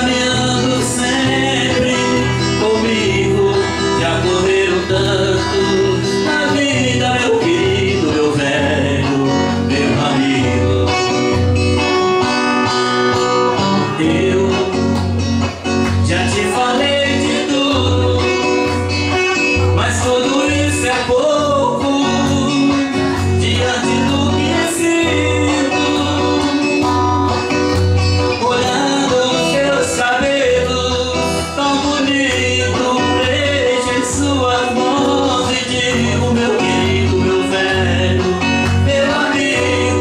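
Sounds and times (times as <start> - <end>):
people singing: 0.0 - 12.2, 13.4 - 15.2, 16.0 - 40.0
electric guitar: 0.0 - 40.0.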